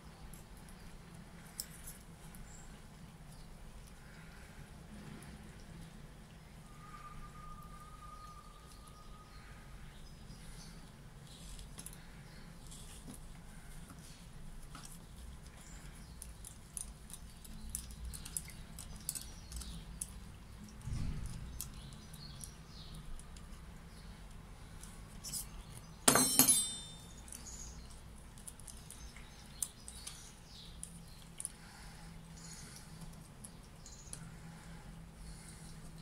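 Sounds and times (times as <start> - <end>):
metallic clatter: 26.1 - 27.1.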